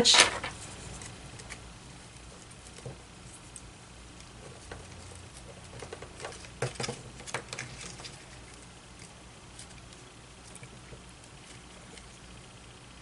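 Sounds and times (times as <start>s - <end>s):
paper handling: 0.0s - 1.6s.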